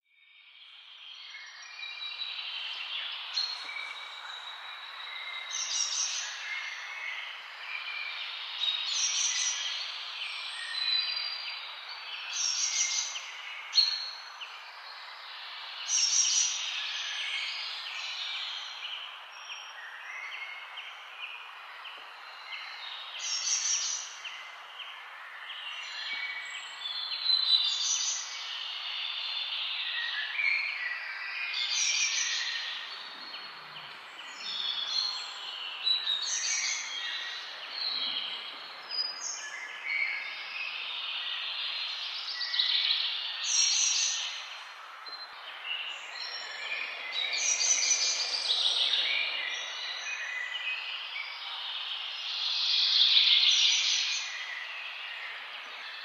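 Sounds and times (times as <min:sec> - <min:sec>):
birds chirping and singing: 0:25.2 - 0:56.0.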